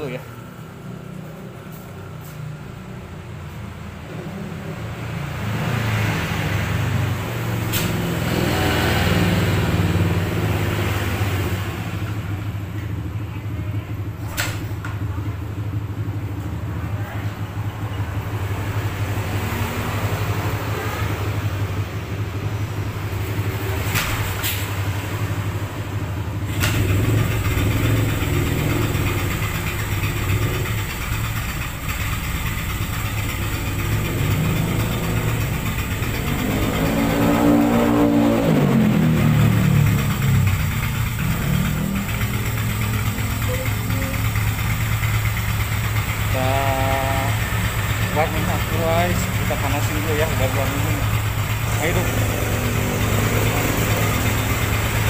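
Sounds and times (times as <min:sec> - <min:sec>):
motorcycle engine starting and idling: 0:00.0 - 0:55.0.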